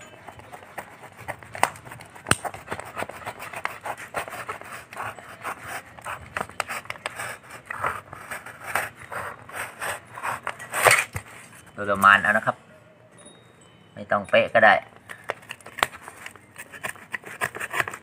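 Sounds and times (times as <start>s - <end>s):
utility knife cutting cardboard: 0.4s - 11.5s, 15.7s - 18.0s.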